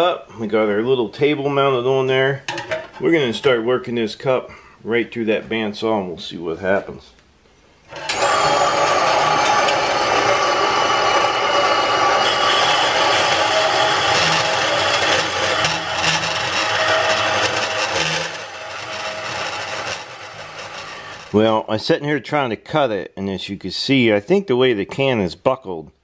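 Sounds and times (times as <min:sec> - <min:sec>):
bandsaw grinding steel: 0:07.9 - 0:21.5.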